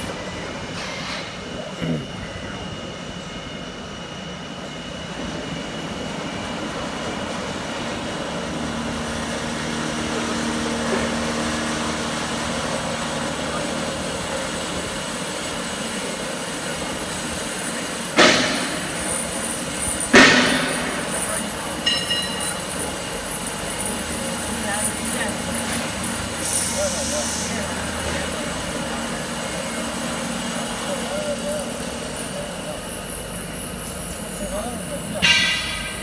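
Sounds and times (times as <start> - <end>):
sharp metallic clank: 18.2 - 19.1, 20.0 - 22.7, 35.2 - 36.0.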